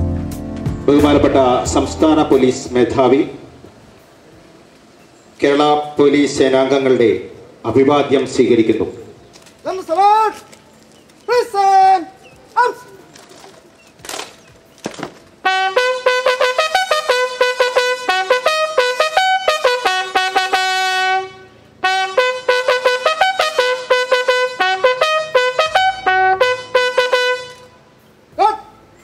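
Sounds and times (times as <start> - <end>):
bugle call: 15.4 - 27.8.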